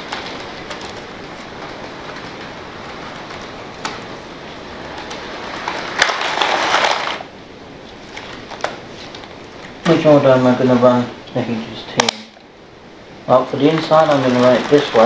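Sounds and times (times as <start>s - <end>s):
model train wheels rattling: 5.0s - 7.2s.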